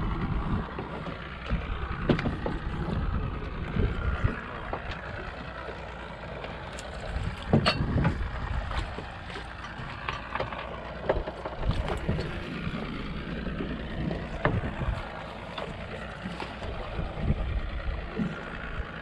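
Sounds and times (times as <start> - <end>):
wind on microphone: 0.0 - 4.8, 6.9 - 9.0, 11.6 - 15.3, 16.3 - 19.0
water sloshing against boat hull: 0.0 - 19.0.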